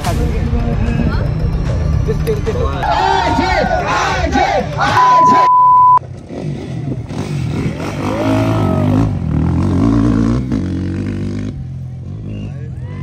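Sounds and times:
dirt bike engines revving: 0.5s - 13.0s
electronic beep: 5.2s - 6.0s.

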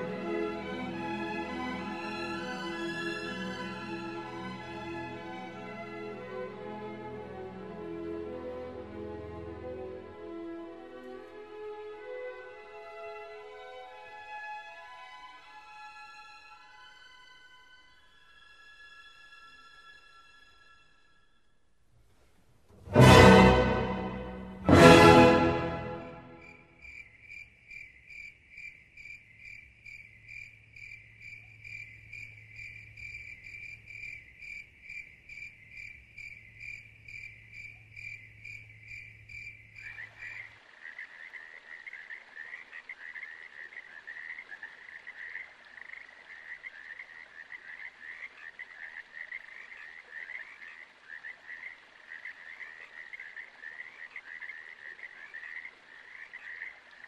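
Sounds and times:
frog chorus trilling: 26.3s - 57.0s
frog repeated high call: 30.8s - 57.0s.

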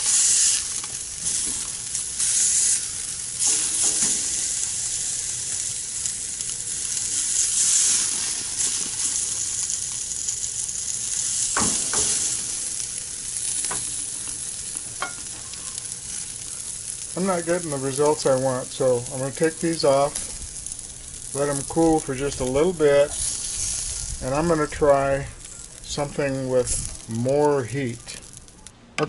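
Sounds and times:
steak sizzling on grate: 0.0s - 28.7s.

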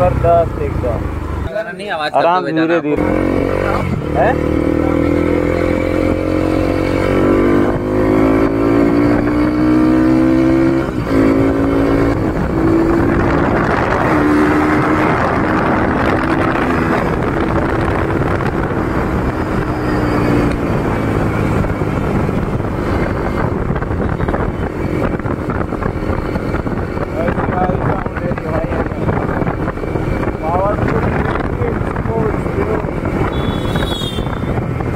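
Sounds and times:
motorcycle engine accelerating: 0.0s - 1.6s, 2.9s - 34.9s
wind on microphone: 3.4s - 34.9s.

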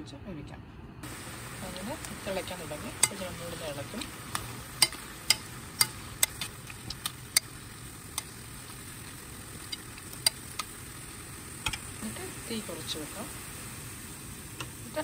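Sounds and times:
liver sizzling and bubbling: 1.0s - 15.0s
metal spoon scraping frying pan: 4.0s - 8.3s.

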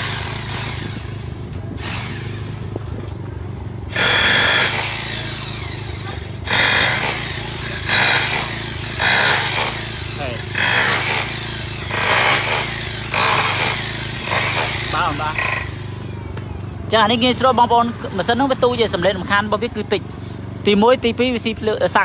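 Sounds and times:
hammer drill hammering concrete: 0.0s - 2.7s, 3.9s - 16.0s
generator humming: 0.0s - 22.0s.

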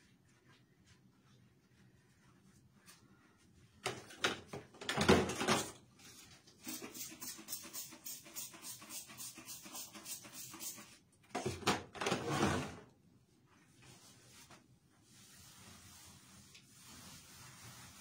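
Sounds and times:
hand scrubbing: 15.1s - 18.0s.

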